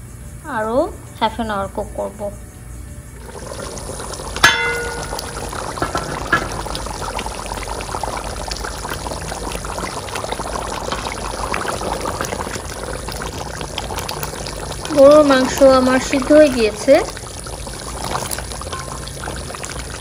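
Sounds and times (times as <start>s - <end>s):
curry bubbling at a boil: 3.1s - 20.0s
small pops of reducing gravy: 3.3s - 20.0s
metal pot lid clanking: 4.4s - 6.9s, 18.6s - 19.9s.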